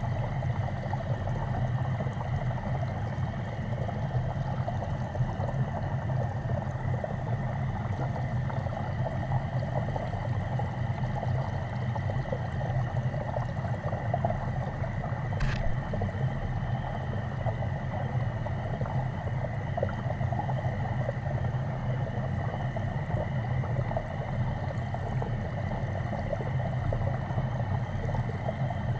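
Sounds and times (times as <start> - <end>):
water churning underwater: 0.0 - 28.9
short click: 15.4 - 16.0
faint high whine: 15.4 - 18.3.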